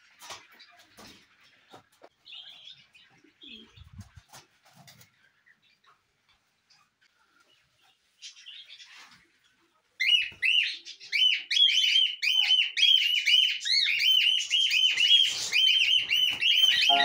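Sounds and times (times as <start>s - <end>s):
cockatiels chirping: 10.0s - 17.0s.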